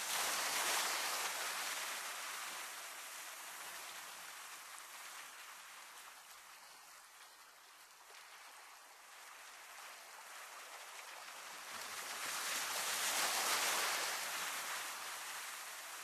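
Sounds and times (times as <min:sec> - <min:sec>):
waves washing on rocky shore: 0:00.0 - 0:03.8.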